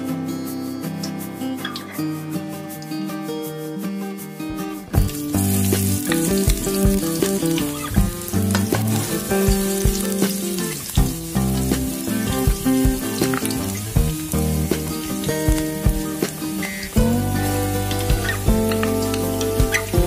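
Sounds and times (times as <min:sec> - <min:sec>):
background music: 0:00.0 - 0:20.0
onion sizzling in hot oil: 0:05.0 - 0:20.0.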